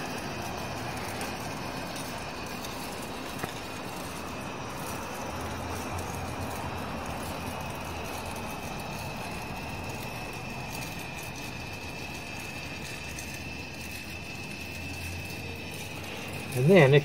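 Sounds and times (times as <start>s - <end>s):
background rumble and hiss: 0.0s - 17.0s
faint high whine: 0.0s - 17.0s.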